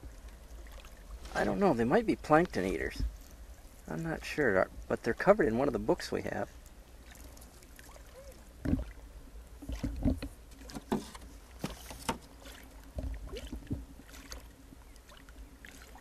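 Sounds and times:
low steady rumble: 0.0s - 16.0s
water splashing against canoe: 0.0s - 16.0s
knocks against hull: 8.6s - 9.0s, 9.6s - 12.3s, 12.9s - 13.9s.

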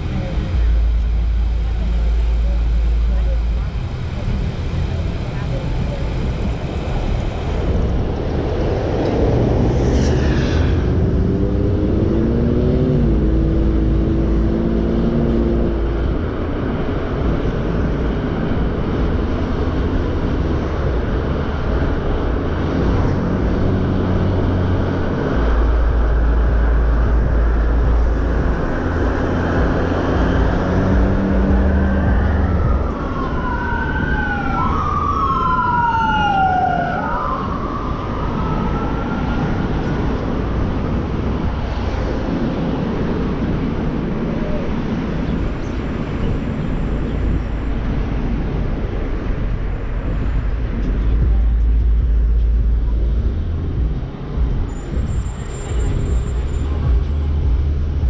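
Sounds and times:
vehicle engines in traffic: 0.0s - 58.0s
emergency vehicle siren wailing: 19.6s - 41.8s.

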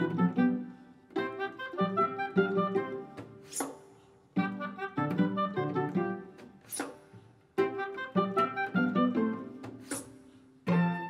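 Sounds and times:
pizzicato strings: 0.0s - 11.0s.

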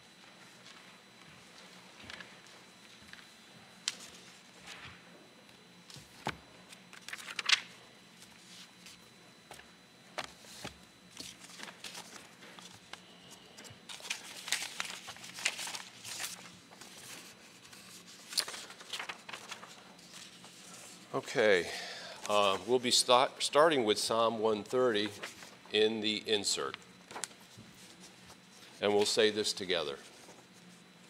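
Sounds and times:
paper rustling and pages turning: 5.9s - 21.1s, 24.9s - 25.6s, 26.7s - 30.9s.

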